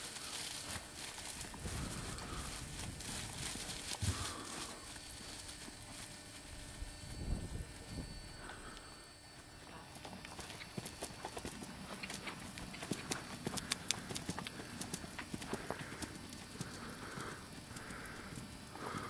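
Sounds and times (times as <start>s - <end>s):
horse hoofbeats clip-clopping: 9.6s - 19.0s.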